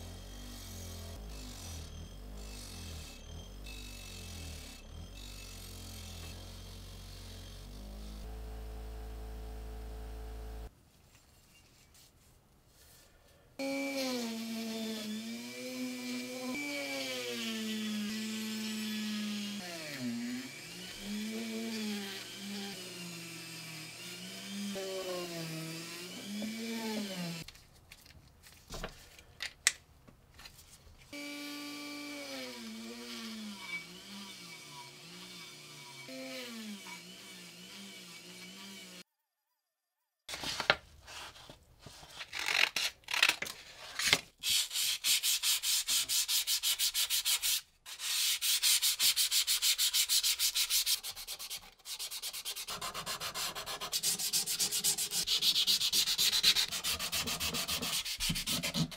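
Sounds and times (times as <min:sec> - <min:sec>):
rotary tool whining: 0:00.0 - 0:10.7, 0:13.7 - 0:27.4, 0:31.2 - 0:39.1
buffing wheel motor hum: 0:04.8 - 0:10.7.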